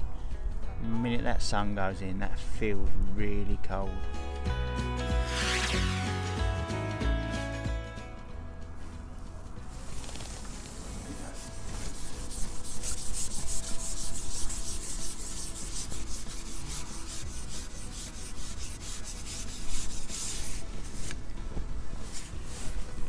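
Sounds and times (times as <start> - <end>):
coat fabric rustling: 9.1 - 14.0, 19.5 - 23.0.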